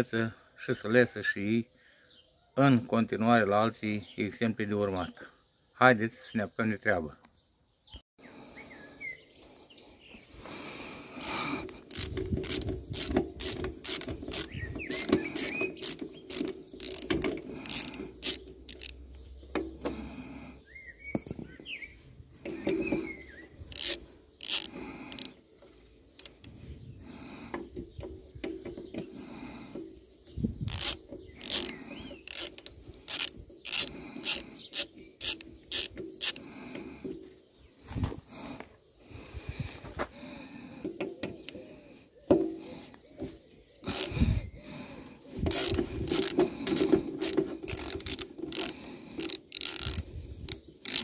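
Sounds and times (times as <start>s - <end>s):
ratchet wrench clicking: 11.2s - 19.1s, 23.7s - 25.3s, 26.2s - 26.4s, 30.7s - 36.4s, 43.9s - 44.2s, 45.5s - 51.0s.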